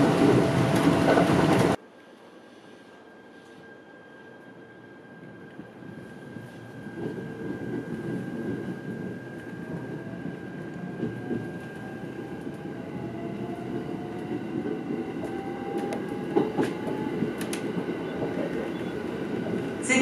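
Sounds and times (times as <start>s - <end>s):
train wheels rumbling: 6.2s - 20.0s.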